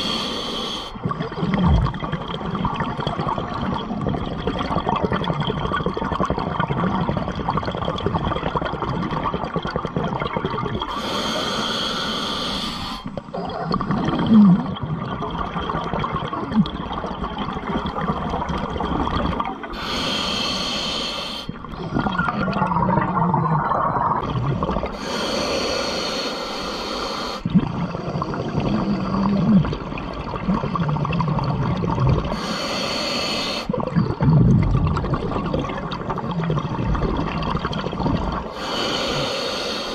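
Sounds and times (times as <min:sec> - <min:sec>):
hissing regulator inhalations: 0:00.0 - 0:01.0, 0:10.8 - 0:13.3, 0:19.7 - 0:21.8, 0:24.9 - 0:27.5, 0:32.3 - 0:33.7, 0:38.5 - 0:39.9
bubbling exhalations: 0:00.9 - 0:39.7.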